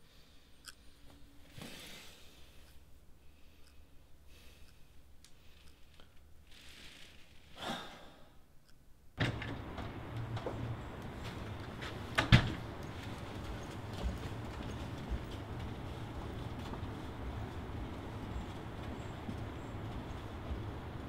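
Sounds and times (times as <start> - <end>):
faint regular ticking: 2.6 - 6.5, 8.5 - 9.1
man sighing: 7.6 - 8.3
steady low hum: 8.2 - 21.0.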